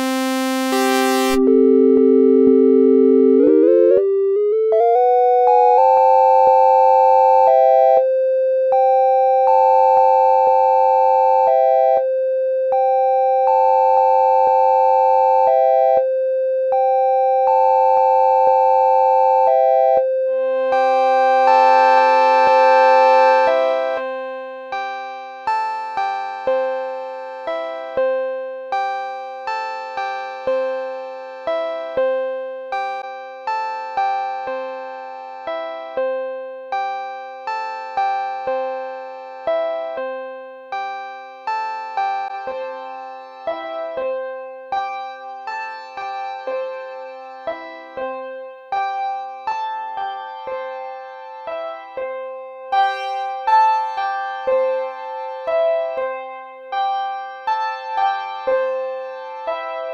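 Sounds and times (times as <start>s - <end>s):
synthesizer looping two-note figure: 0.0s - 5.8s.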